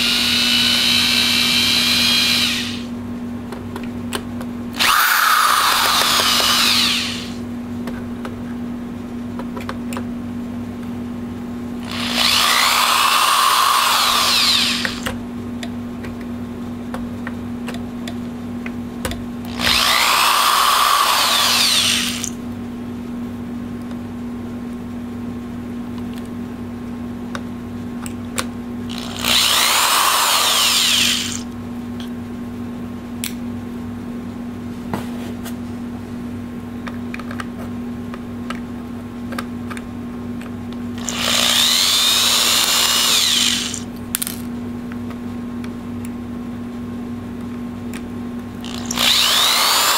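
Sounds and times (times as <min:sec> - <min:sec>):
cordless drill driving screws: 0:00.0 - 0:02.9, 0:04.8 - 0:07.4, 0:11.8 - 0:15.1, 0:19.5 - 0:22.3, 0:28.9 - 0:31.4, 0:41.0 - 0:43.8, 0:48.7 - 0:49.9.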